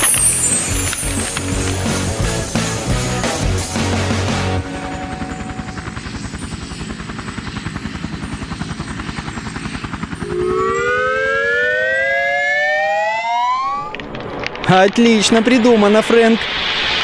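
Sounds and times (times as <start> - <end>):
cartoon helicopter rotor chop: 0.0 - 14.6
whine rising in pitch: 3.8 - 6.8, 10.2 - 17.0.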